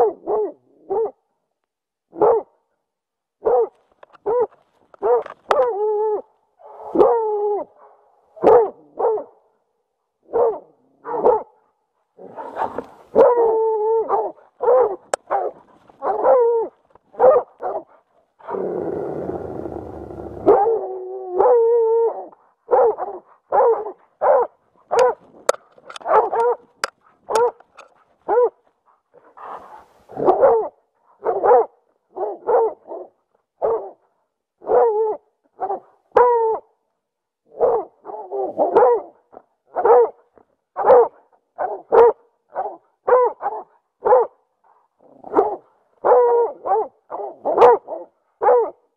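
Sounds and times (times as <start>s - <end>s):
dog baying barks: 3.4s - 5.8s, 7.8s - 9.4s, 10.3s - 11.6s, 12.4s - 18.7s, 20.3s - 25.2s, 25.9s - 28.6s, 29.4s - 34.0s, 34.6s - 36.6s, 37.5s - 40.2s, 40.8s - 44.4s, 45.2s - 48.8s.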